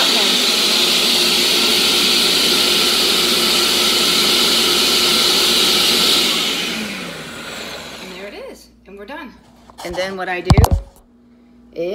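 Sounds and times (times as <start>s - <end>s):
blender running at high speed: 0.0s - 8.4s.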